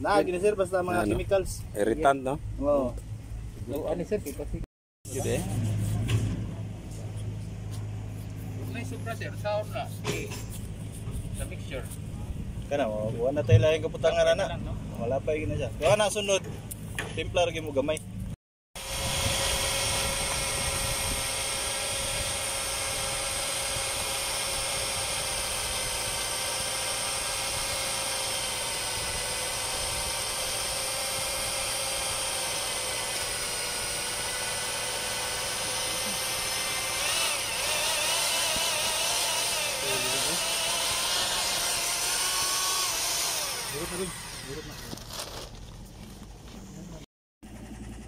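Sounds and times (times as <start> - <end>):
electric paddle mixer whining: 18.8 - 45.0.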